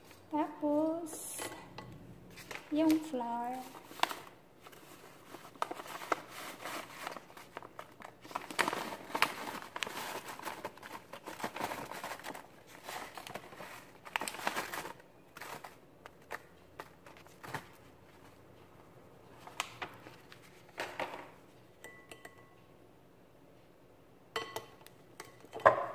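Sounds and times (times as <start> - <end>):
bag crinkling: 2.3 - 16.5.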